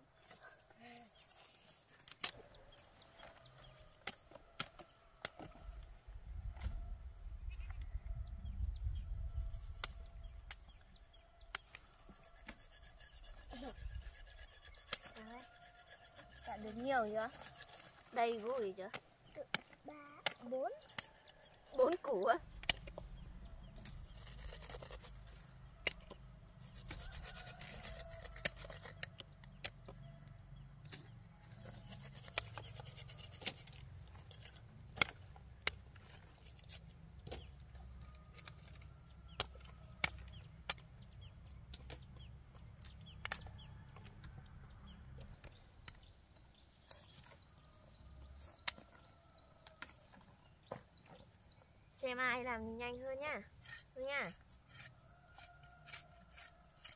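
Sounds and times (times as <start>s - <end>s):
roots and stems snapping by hand: 33.4s - 40.9s.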